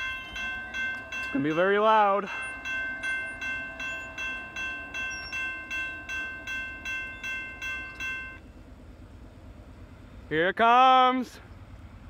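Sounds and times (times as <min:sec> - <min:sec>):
crossing warning bell ringing: 0:00.0 - 0:08.8.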